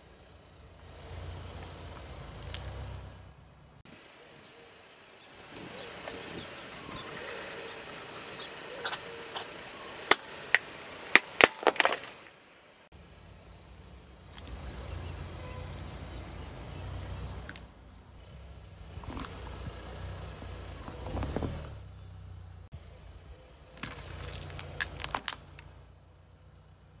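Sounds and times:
car rumbling over asphalt: 0:00.0 - 0:03.9, 0:13.0 - 0:23.2
plastic toys cracking under tyre: 0:10.1 - 0:12.2, 0:23.8 - 0:25.8.

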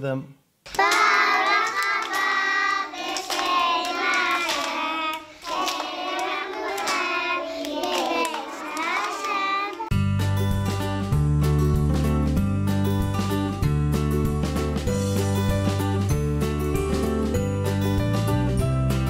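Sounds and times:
girls singing together: 0:00.7 - 0:09.9
hands clapping in time: 0:00.7 - 0:10.0.

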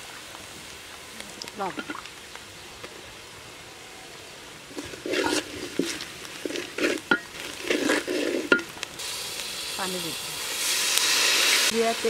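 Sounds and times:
onions frying in oil: 0:00.0 - 0:12.0
spatula scraping in pot: 0:04.7 - 0:08.7.

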